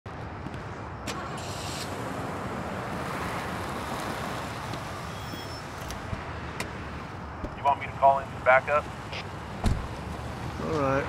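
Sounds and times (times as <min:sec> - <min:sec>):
steady rushing ambience: 0:06.0 - 0:10.7.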